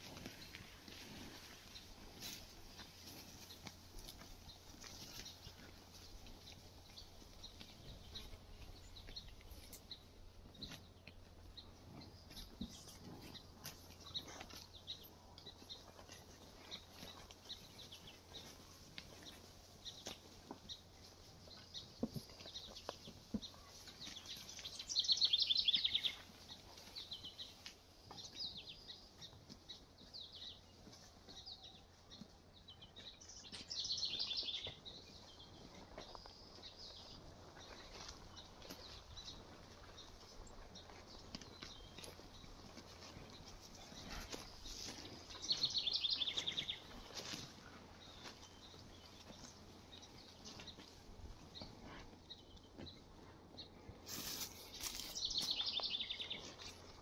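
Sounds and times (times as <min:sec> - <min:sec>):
songbirds singing and chirping: 0:00.0 - 0:57.0
rapid trilled bird song: 0:21.5 - 0:27.6, 0:32.6 - 0:50.9, 0:54.2 - 0:56.8.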